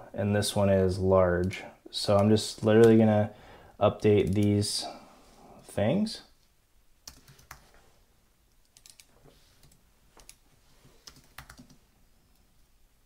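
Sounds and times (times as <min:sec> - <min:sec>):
typing on computer keyboard: 0:07.1 - 0:07.6, 0:08.6 - 0:10.4, 0:11.0 - 0:11.8.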